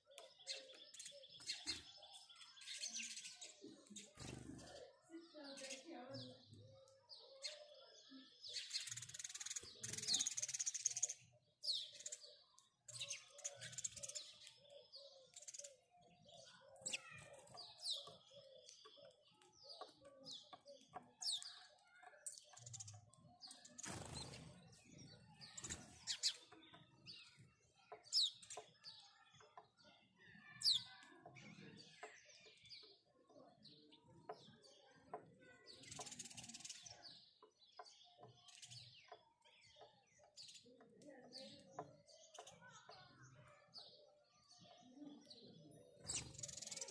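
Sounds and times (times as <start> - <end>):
sparrows chirping: 0.0 - 46.9.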